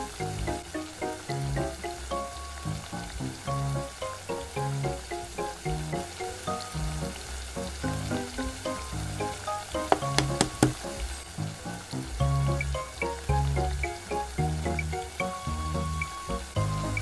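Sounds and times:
background music: 0.0s - 17.0s
sauce sizzling in a wok: 0.0s - 17.0s
egg shell tapping: 9.8s - 10.9s.

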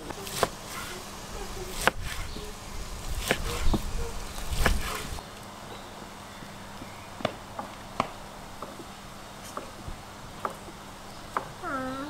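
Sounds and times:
knife slicing meat: 3.1s - 5.2s.

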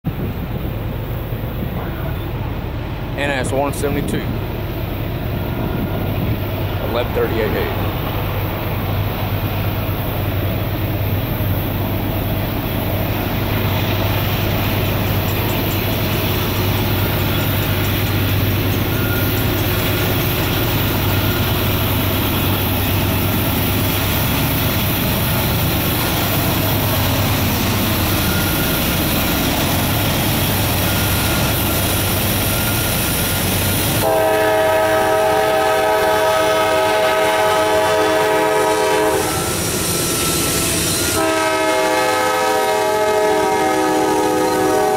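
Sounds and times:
train rumble: 0.0s - 44.9s
locomotive air horn chord: 34.0s - 44.9s.

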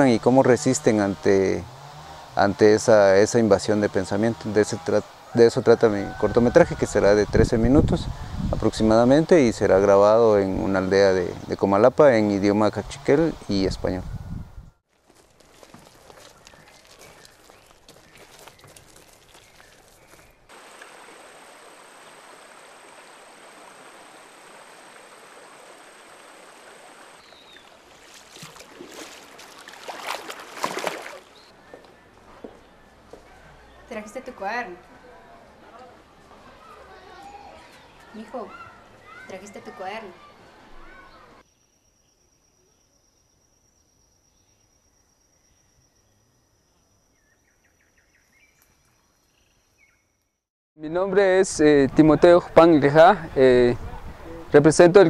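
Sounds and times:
stream running over stones: 18.4s - 31.4s
child wading through water: 24.9s - 31.5s
high insect trill: 41.4s - 47.4s.

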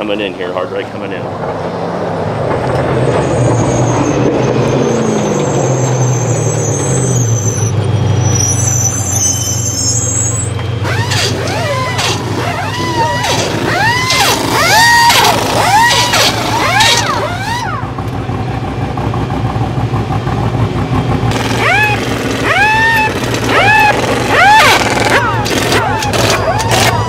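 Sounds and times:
truck engine idling: 5.4s - 27.0s
air tools whirring: 10.1s - 17.9s, 21.3s - 27.0s.

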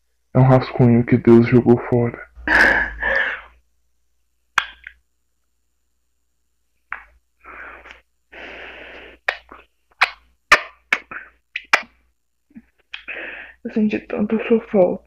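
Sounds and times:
breathy exhales: 2.4s - 3.6s
person sniffing: 7.4s - 9.7s.

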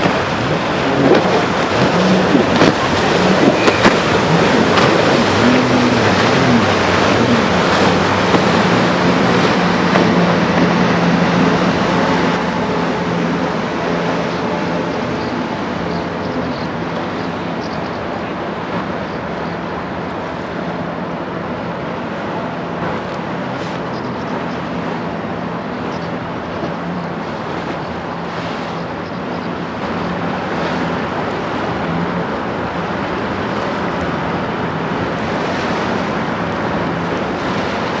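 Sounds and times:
wind on microphone: 0.0s - 19.7s
choppy river water: 0.0s - 38.0s
ship diesel engine running: 0.0s - 38.0s.

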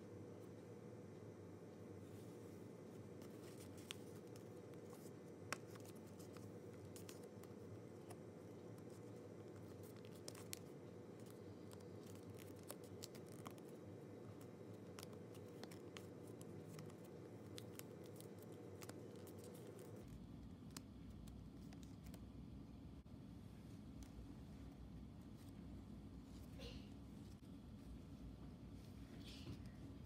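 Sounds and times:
low background hum: 0.0s - 30.0s
paper crinkling while folded: 3.2s - 22.2s.

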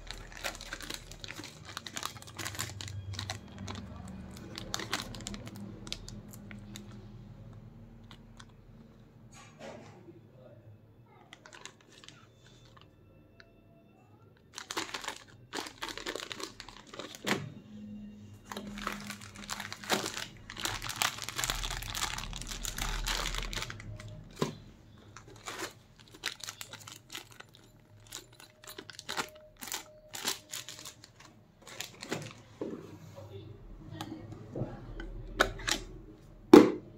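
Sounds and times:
plastic bags crinkling: 0.0s - 8.6s, 11.3s - 12.9s, 14.4s - 32.6s.

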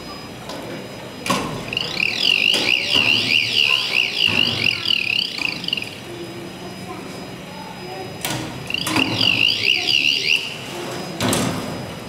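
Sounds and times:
electronic warbling alarm: 1.6s - 7.9s, 8.7s - 10.7s.

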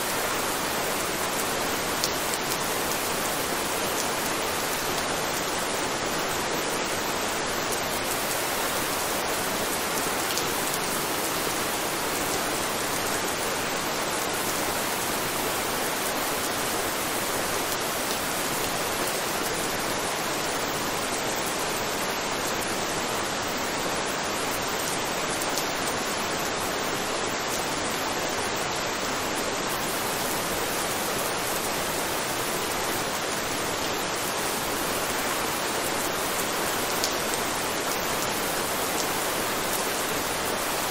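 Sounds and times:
steady rain hiss: 0.0s - 40.9s.

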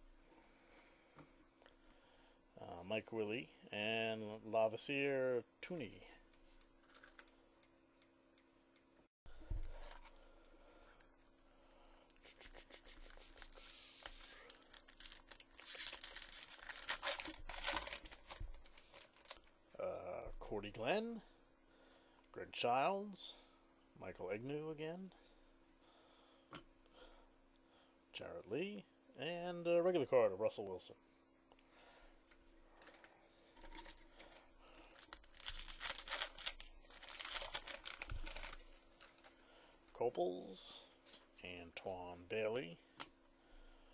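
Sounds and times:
plastic wrapper tearing and crinkling: 12.8s - 19.5s, 34.8s - 39.3s.

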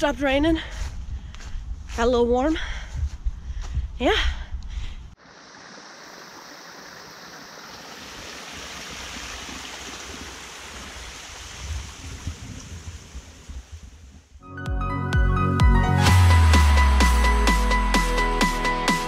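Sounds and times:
stream running over rocks: 5.2s - 13.8s.

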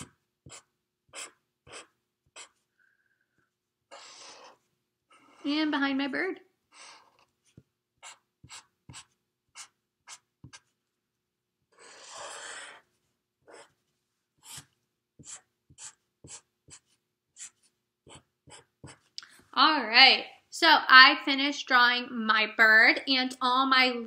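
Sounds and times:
marker drawing on paper: 0.0s - 5.8s, 6.7s - 10.9s, 11.7s - 19.4s.

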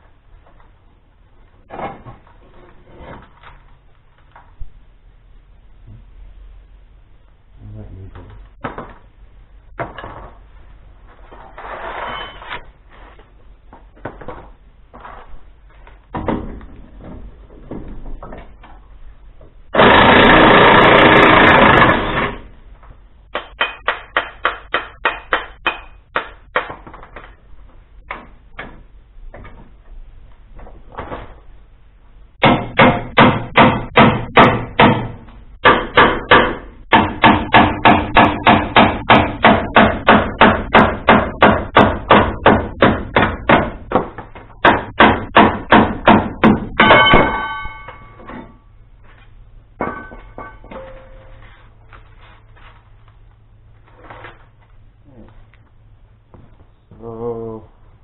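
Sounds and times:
continuous power tool burst: 19.7s - 22.4s
sharp metallic strikes: 46.7s - 48.2s.

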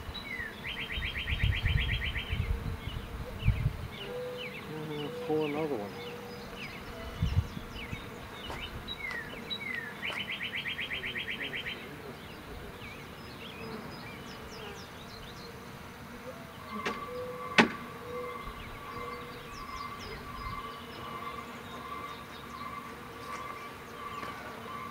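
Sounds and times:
bees buzzing: 0.0s - 24.9s
birds chirping: 0.0s - 24.9s
sharp knock: 17.6s - 17.8s.

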